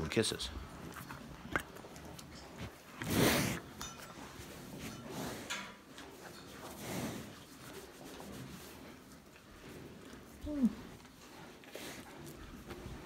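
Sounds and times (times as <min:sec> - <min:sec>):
hand rubbing animal fur: 0:06.1 - 0:09.4.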